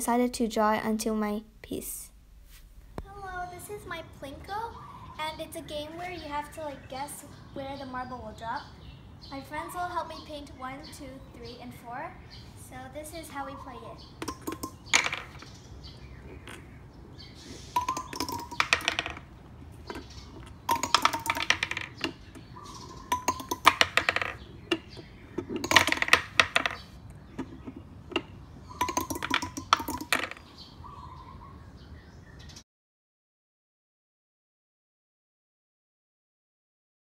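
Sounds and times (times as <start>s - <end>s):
marbles clinking into bins: 14.2s - 15.5s, 17.7s - 30.4s
marbles clattering through pegs: 14.2s - 15.6s, 17.4s - 30.5s.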